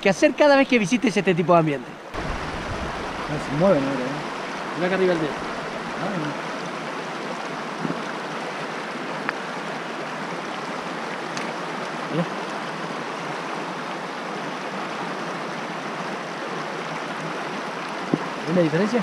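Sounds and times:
stream flowing over stones: 0.0 - 19.0.

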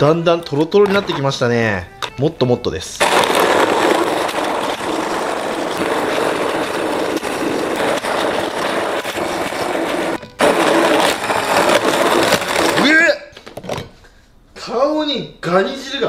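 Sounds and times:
immersion blender grinding shells: 3.0 - 13.0.

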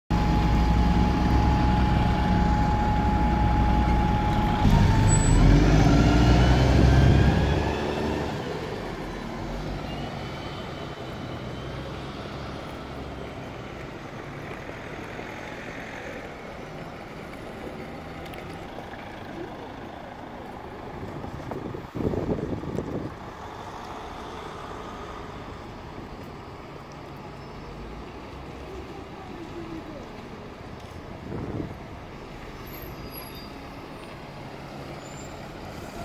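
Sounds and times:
bus engine revving: 0.1 - 16.2
distant traffic hum: 0.1 - 36.0.

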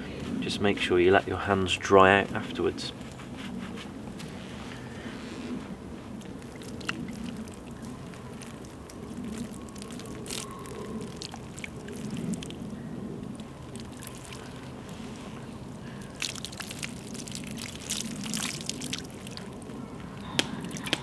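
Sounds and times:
water trickling and splashing: 6.0 - 21.0.

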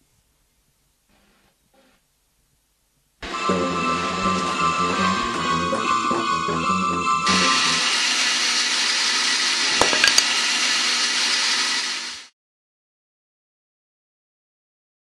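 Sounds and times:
music: 3.2 - 8.0
loud steady hissing noise: 7.2 - 12.3.

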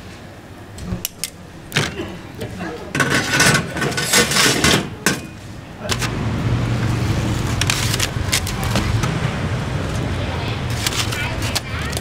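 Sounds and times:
noisy clatter: 0.8 - 12.0
motor vehicle engine humming: 4.9 - 12.0.

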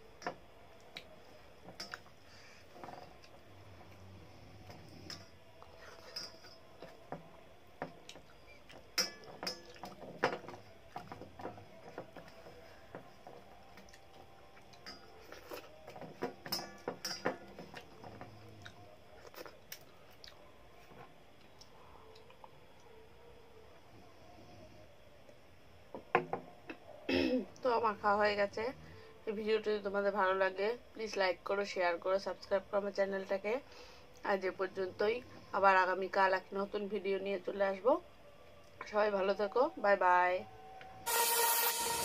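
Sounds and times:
chewing and mouth clicks: 13.8 - 15.8, 17.7 - 20.5.

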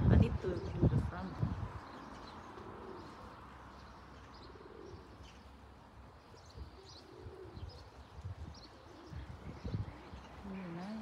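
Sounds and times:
small birds chirping: 0.0 - 11.0
pigeon cooing: 2.6 - 3.4, 4.4 - 5.2, 6.5 - 8.0.

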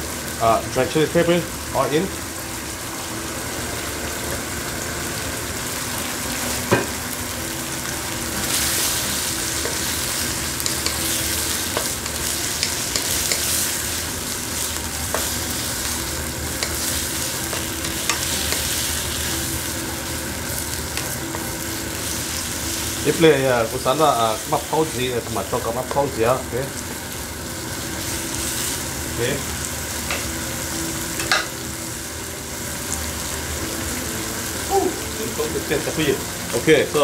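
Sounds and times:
food sizzling in frying pan: 0.0 - 37.0
spatula tapping pan: 10.6 - 13.6.

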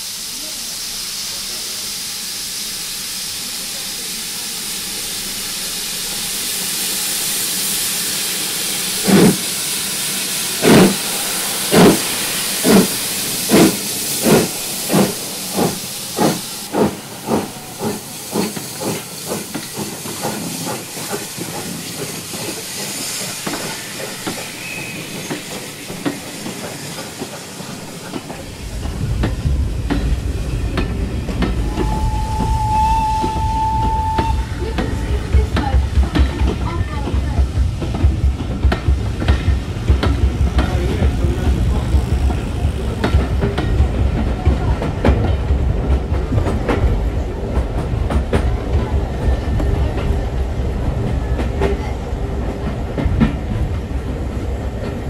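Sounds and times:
steam hissing: 0.0 - 55.0
steam locomotive exhaust chuffs: 0.0 - 55.0
low rumble: 28.4 - 32.6.

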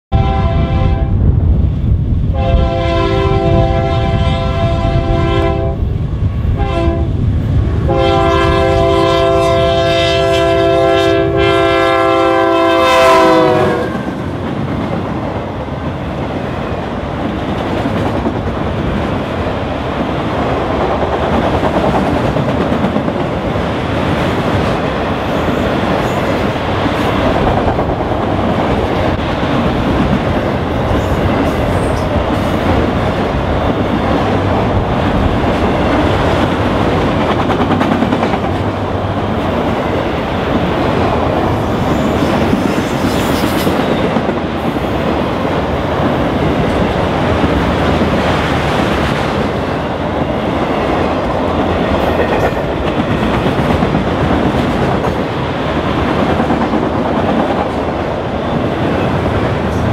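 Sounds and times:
locomotive horn blasts: 0.1 - 1.2, 2.3 - 5.8, 6.6 - 7.2, 7.9 - 14.2.

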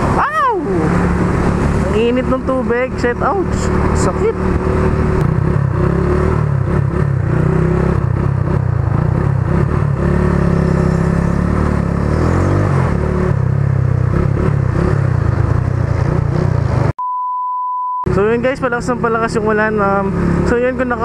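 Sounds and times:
motorcycle engine running: 1.0 - 16.9.

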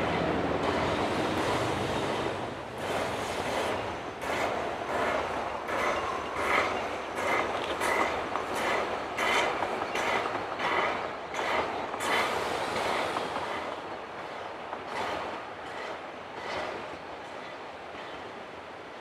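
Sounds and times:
steam locomotive chuffing: 0.1 - 13.9.

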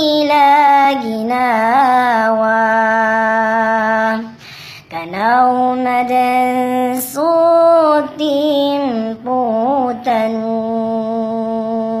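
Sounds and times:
person singing a chant: 0.0 - 12.0
short breath: 4.3 - 4.9.

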